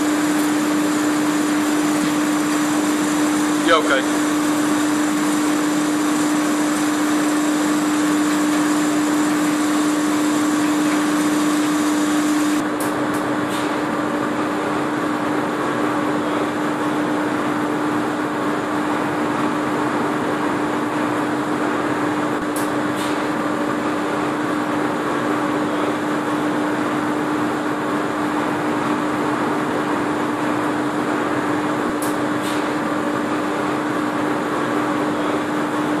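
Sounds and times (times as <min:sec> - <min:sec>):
bucket elevator running: 0:00.0 - 0:12.6.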